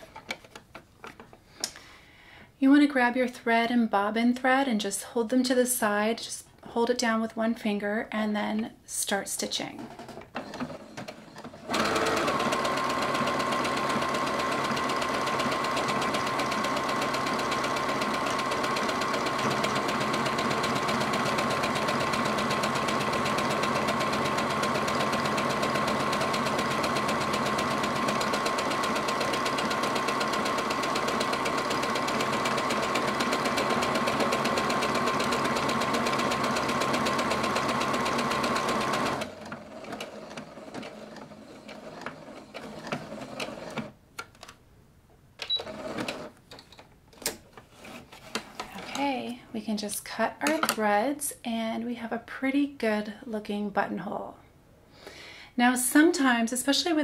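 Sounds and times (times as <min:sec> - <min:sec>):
sewing machine motor whining: 0:10.3 - 0:43.9.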